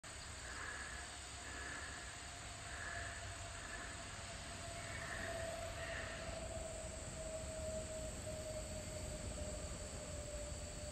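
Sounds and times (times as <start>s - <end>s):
steady hum-like tone: 0.1s - 10.9s
faint animal calls: 0.4s - 6.6s.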